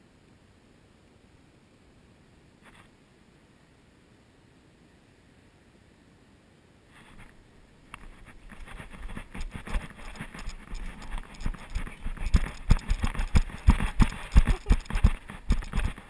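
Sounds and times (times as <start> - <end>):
footsteps on dirt path: 8.0 - 16.0.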